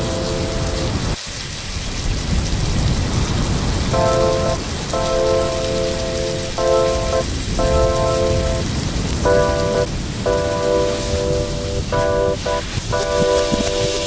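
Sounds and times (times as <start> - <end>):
music with long held notes: 0.0 - 1.0, 4.0 - 14.0.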